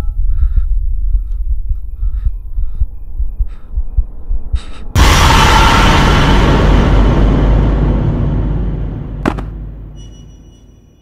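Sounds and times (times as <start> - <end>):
throbbing heartbeat-like pulse: 0.0 - 5.1
burst of harsh noise: 5.0 - 9.2.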